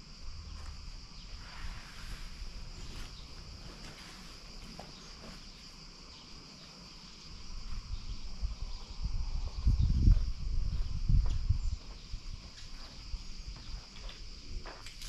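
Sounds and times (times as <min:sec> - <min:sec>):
insects chirring: 0:00.0 - 0:15.0
wind buffeting microphone: 0:07.2 - 0:14.7.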